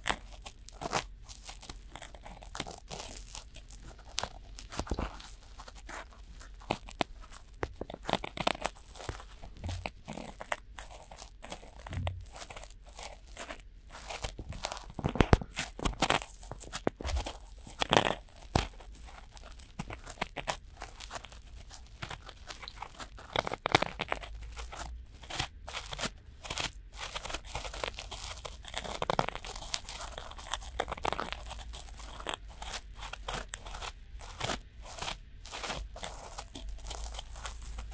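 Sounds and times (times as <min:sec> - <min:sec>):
cotton swabs scratching microphone: 0:00.0 - 0:19.4.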